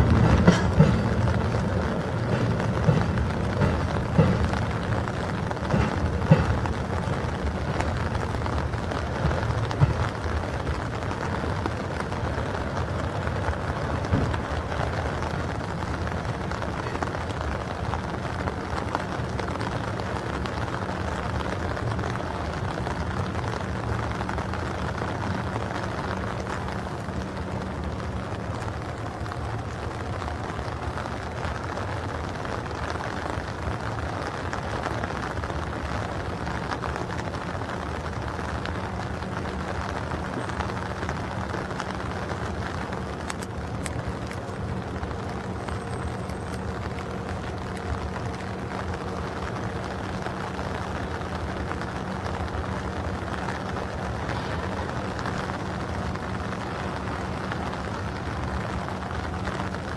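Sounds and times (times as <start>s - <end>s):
train wheels knocking on rails: 0.0s - 17.2s
freight train wagons rolling: 0.0s - 59.9s
steady rain: 0.0s - 59.9s.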